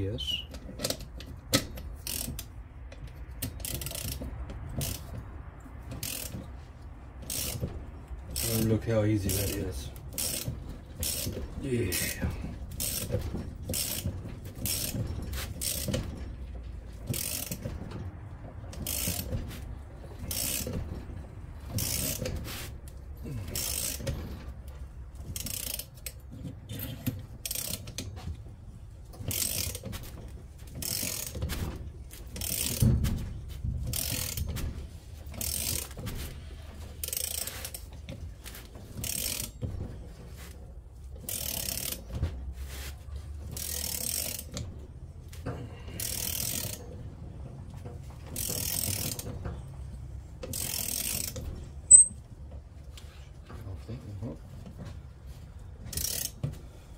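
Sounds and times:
ratchet wrench clicking: 0.6s - 5.2s, 5.9s - 6.5s, 7.2s - 16.0s, 17.0s - 17.7s, 18.7s - 19.4s, 20.2s - 20.8s, 21.7s - 22.3s, 22.9s - 24.2s, 25.2s - 28.1s, 29.2s - 29.9s, 30.7s - 31.5s, 32.3s - 32.9s, 33.9s - 34.6s, 35.3s - 36.0s, 37.0s - 37.9s, 39.0s - 39.6s, 41.2s - 42.0s, 43.5s - 44.6s, 46.0s - 46.8s, 48.4s - 49.3s, 50.4s - 52.2s, 55.9s - 56.4s.

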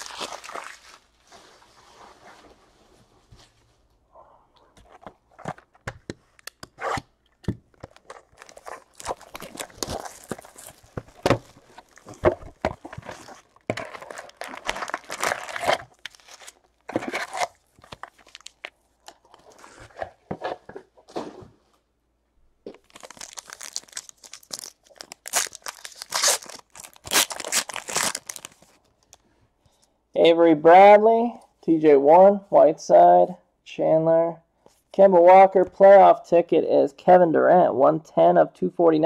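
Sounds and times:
foil wrapper tearing: 0.0s - 1.0s, 7.8s - 12.2s, 12.8s - 18.7s, 22.9s - 28.8s
foil packs crinkling: 0.0s - 1.2s, 7.8s - 19.8s, 22.8s - 29.2s
cardboard box being opened: 7.9s - 18.6s.

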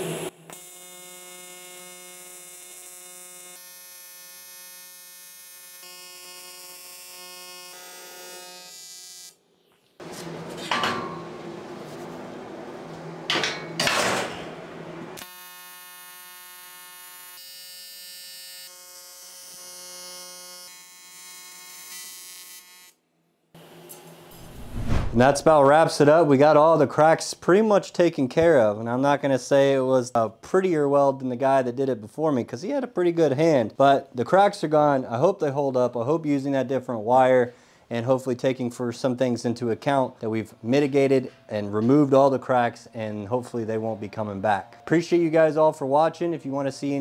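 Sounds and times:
welding arc buzzing: 0.0s - 9.4s, 15.2s - 23.0s
harsh loud noise: 24.3s - 25.6s.

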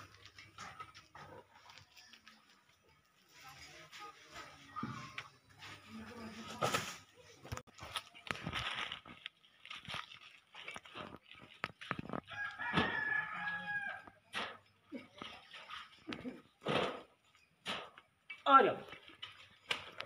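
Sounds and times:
rooster crowing: 12.3s - 14.1s.

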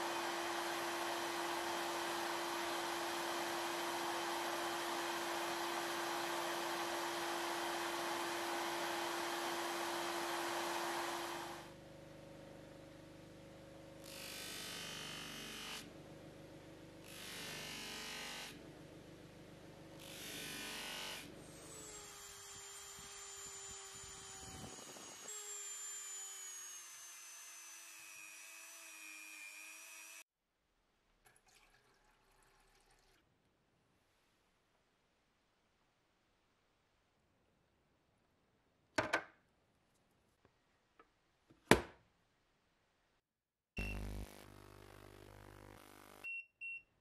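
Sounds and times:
water trickling: 31.3s - 33.2s.

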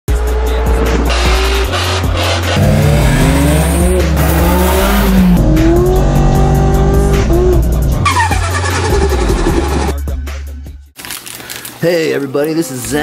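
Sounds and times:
car engine revving: 0.1s - 9.9s
bass-heavy music: 0.1s - 11.0s
tyres squealing: 8.0s - 9.9s.

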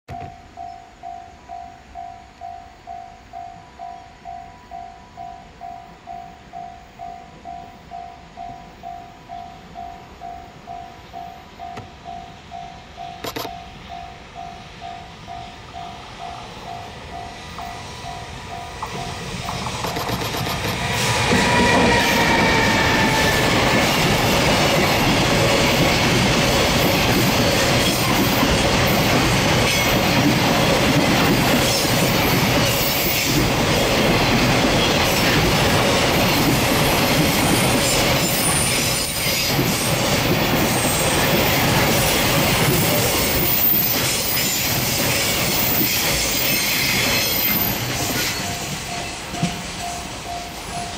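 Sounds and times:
train wheels rumbling on rails: 9.6s - 50.9s
high squeal: 19.8s - 24.4s, 43.2s - 50.9s.

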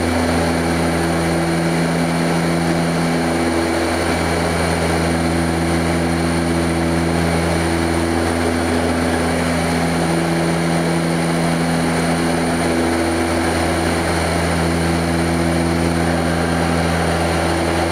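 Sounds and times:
high turbine whine: 0.0s - 17.9s
propeller drone: 0.0s - 17.9s.

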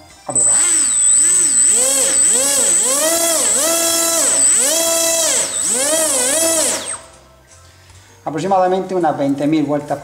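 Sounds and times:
steady high whistle: 0.3s - 7.2s
electric motor propeller whine: 0.4s - 7.2s.

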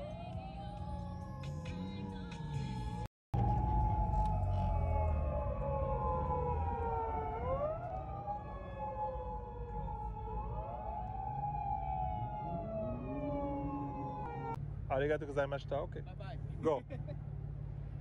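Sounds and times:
police sirens wailing: 0.0s - 14.6s
low engine rumble: 0.0s - 18.0s.

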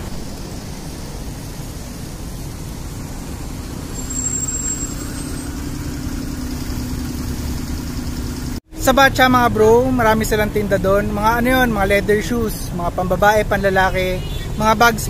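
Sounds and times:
road traffic: 0.0s - 15.0s
van engine hum: 0.0s - 15.0s
brief high squeal: 4.0s - 6.2s.

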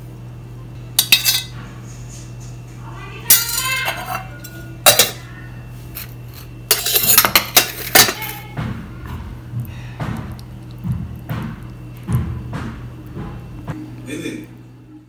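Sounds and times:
spoon clinking on metal bowls: 1.0s - 1.5s, 3.3s - 5.2s, 6.0s - 8.4s.

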